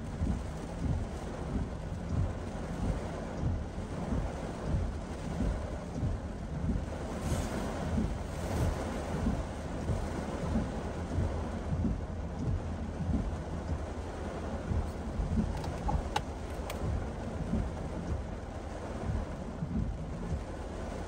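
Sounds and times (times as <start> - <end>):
heavy rain pelting a car: 0.0 - 21.0.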